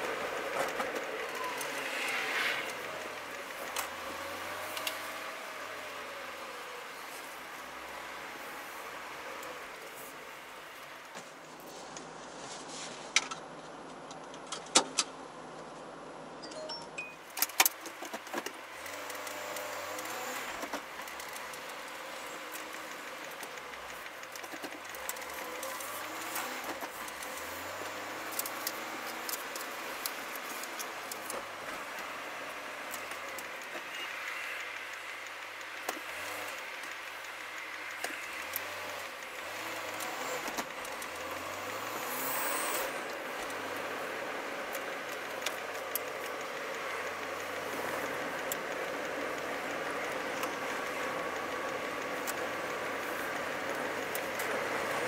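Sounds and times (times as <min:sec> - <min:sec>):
road and tyre noise: 0:00.0 - 0:55.0
sharp clicks and rattles: 0:13.1 - 0:15.7, 0:16.5 - 0:55.0
vehicle engine changing gear: 0:17.2 - 0:55.0.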